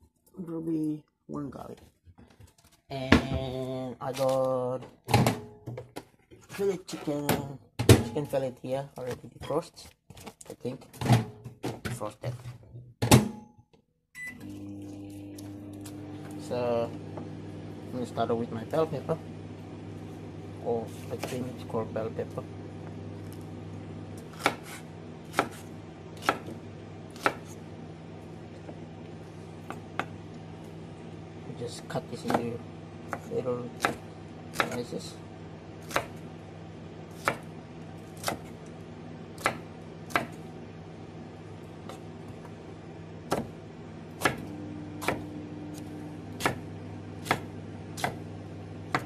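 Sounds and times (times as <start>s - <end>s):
steady low hum: 14.6s - 49.0s
knife chopping on wooden board: 20.9s - 21.6s, 24.2s - 27.6s, 29.6s - 30.2s, 32.2s - 32.5s, 33.1s - 34.8s, 35.8s - 36.2s, 37.1s - 37.4s, 38.1s - 38.6s, 39.4s - 40.4s, 43.3s - 43.6s, 44.2s - 48.2s.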